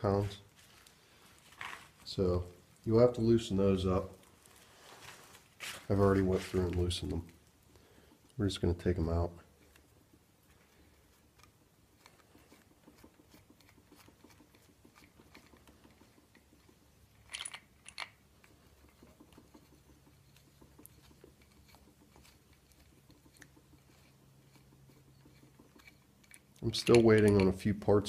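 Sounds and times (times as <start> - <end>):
bolts clicking being turned: 11.1 - 27.8.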